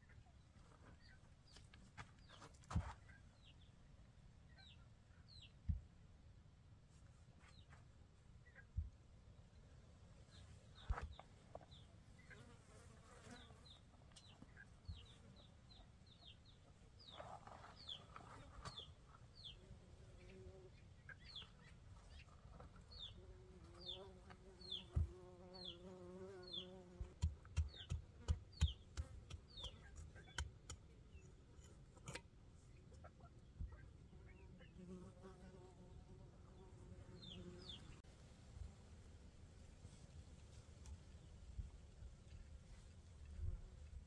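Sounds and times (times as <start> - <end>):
small birds chirping: 13.2 - 31.8, 35.9 - 38.0.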